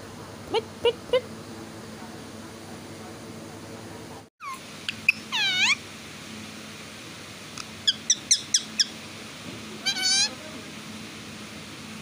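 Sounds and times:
parakeet calling: 4.4s - 5.8s, 7.8s - 9.0s, 9.8s - 10.4s.

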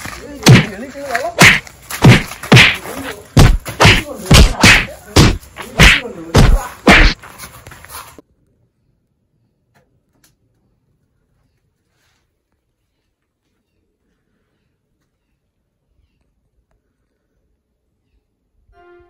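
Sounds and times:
punching whacks: 0.4s - 0.8s, 1.4s - 7.2s.

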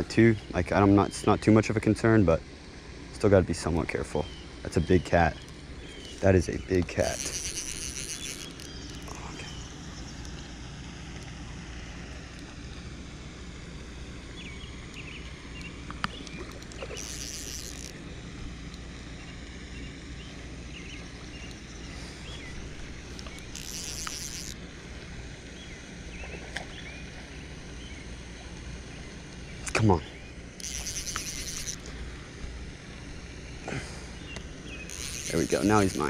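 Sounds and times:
faint clicks: 5.3s - 9.5s, 15.6s - 17.9s, 23.1s - 24.6s, 30.6s - 32.0s, 34.3s - 36.0s
short high-pitched buzzes: 6.0s - 9.2s, 16.8s - 18.0s, 22.8s - 24.6s, 30.6s - 32.0s, 34.8s - 36.0s.

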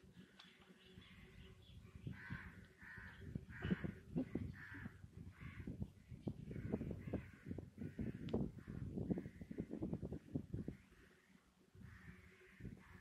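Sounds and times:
harsh caw-like calls: 2.1s - 5.8s, 6.5s - 9.8s, 10.6s - 13.0s.

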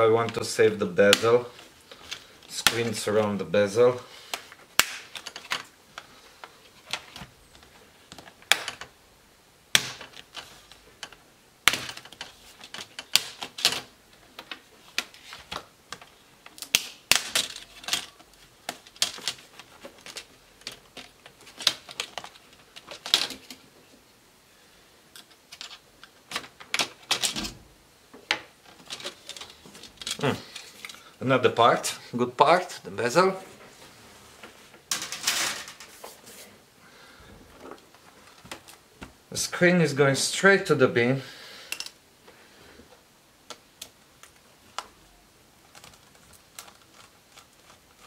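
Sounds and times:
plastic clips snapping loose: 11.0s - 19.4s.

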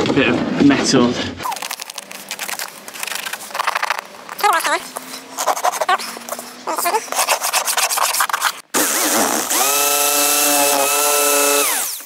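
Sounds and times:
scratchy rubbing: 1.4s - 9.2s
jigsaw cutting plastic sheet: 1.4s - 12.0s.

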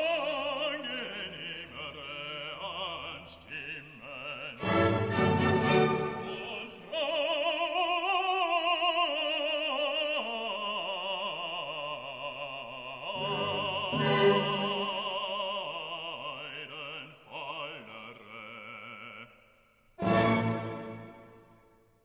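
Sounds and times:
opera singer with wide vibrato: 0.0s - 21.3s
musical accompaniment: 4.6s - 6.7s, 13.1s - 15.2s, 20.0s - 21.8s.

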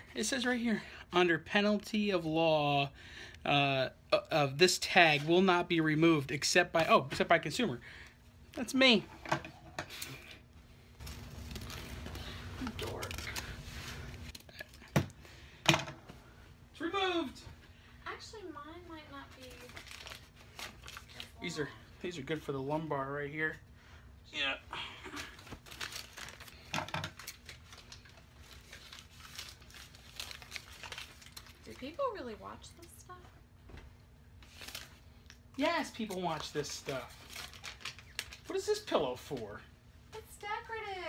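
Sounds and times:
packaging crinkling and rustling: 11.0s - 14.9s, 19.2s - 21.7s, 25.2s - 32.0s, 34.4s - 39.6s.

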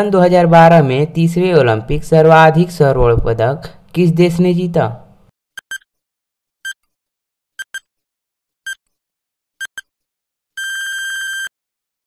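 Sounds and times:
electronic timer beeps: 5.6s - 5.9s, 7.6s - 7.9s, 9.6s - 9.9s, 10.6s - 11.5s
long steady beep: 10.6s - 11.5s.

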